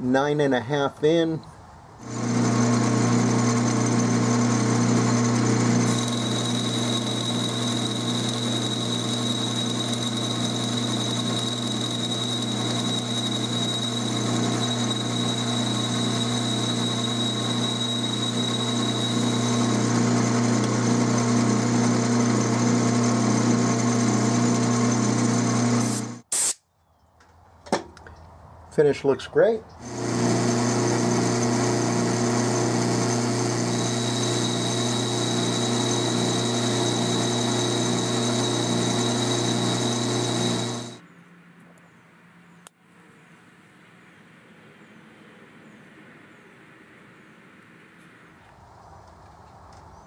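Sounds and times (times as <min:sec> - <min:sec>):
lathe humming with pulsing: 0:02.0 - 0:26.2, 0:29.8 - 0:41.0
thin high whine: 0:05.8 - 0:20.2, 0:29.9 - 0:41.0.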